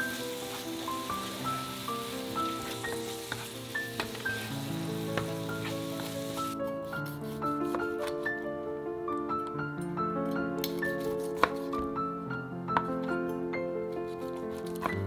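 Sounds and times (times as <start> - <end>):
garlic sizzling in oil: 0.0 - 6.6
spatula stirring in pan: 0.0 - 6.6
background music: 0.0 - 15.0
knife slicing crisp pork: 5.2 - 8.2, 10.6 - 11.9, 13.9 - 15.0.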